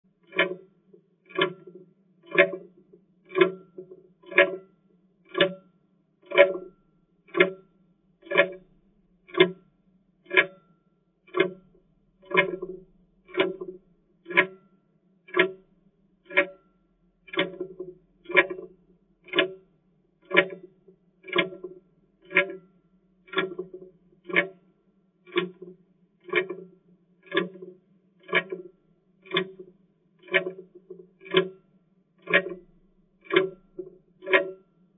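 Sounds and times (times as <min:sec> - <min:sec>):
clock ticking: 0:00.3 - 0:00.6, 0:01.3 - 0:02.7, 0:03.3 - 0:04.6, 0:05.3 - 0:05.6, 0:06.3 - 0:07.6, 0:08.2 - 0:08.7, 0:09.3 - 0:09.6, 0:10.3 - 0:10.6, 0:11.3 - 0:14.6, 0:15.3 - 0:15.6, 0:16.3 - 0:16.6, 0:17.3 - 0:19.6, 0:20.3 - 0:22.7, 0:23.3 - 0:24.6, 0:25.3 - 0:31.6, 0:32.2 - 0:34.6.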